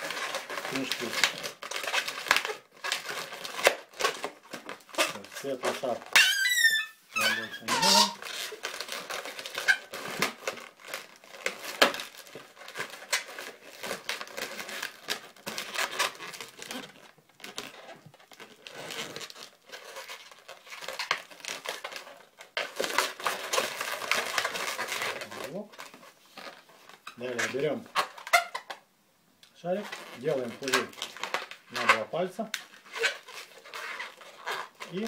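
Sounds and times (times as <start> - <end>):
balloons rubbing and crinkling: 0.0 - 28.9, 29.6 - 35.0.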